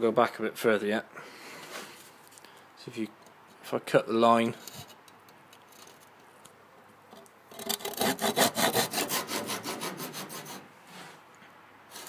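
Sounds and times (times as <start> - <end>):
hand saw cutting wood: 7.5 - 10.7.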